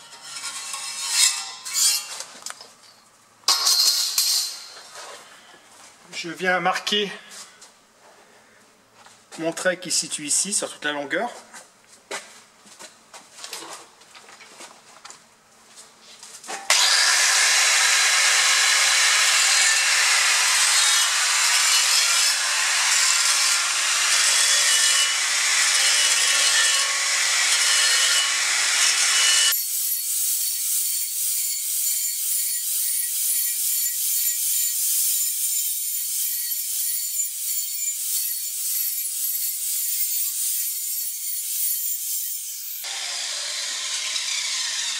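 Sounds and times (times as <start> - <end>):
angle grinder grinding steel: 0.0 - 2.3, 16.7 - 44.9.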